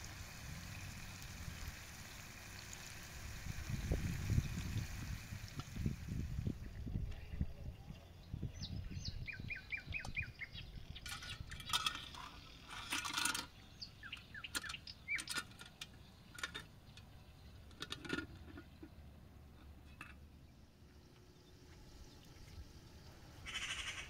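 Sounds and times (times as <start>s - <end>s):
small birds chirping: 6.6s - 12.4s, 13.5s - 17.8s
metal pan clinking and clattering: 11.1s - 13.5s.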